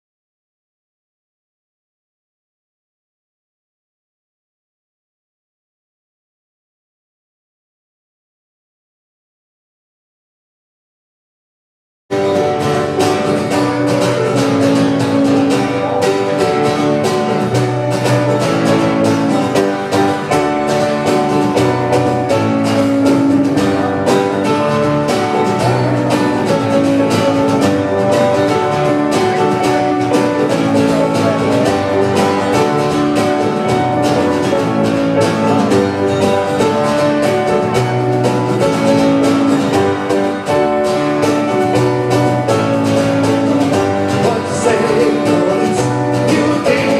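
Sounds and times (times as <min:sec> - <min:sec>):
live band playing instrumental: 0:12.1 - 0:46.9.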